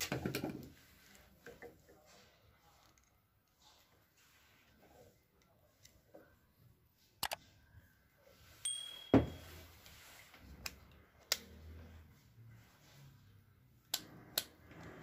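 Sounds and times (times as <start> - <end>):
faint high tone: 8.6 - 9.7.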